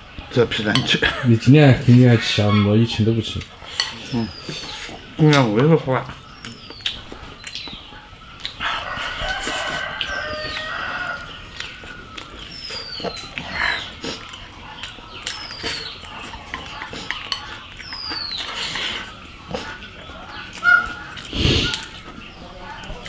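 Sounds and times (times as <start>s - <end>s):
rooster crowing: 8.6s - 11.4s.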